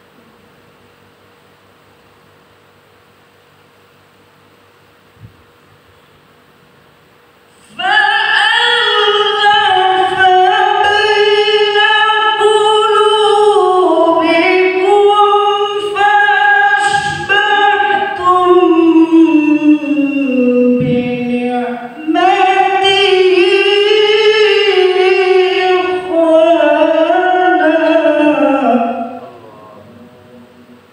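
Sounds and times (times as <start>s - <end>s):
man reciting melodiously: 7.7s - 30.9s.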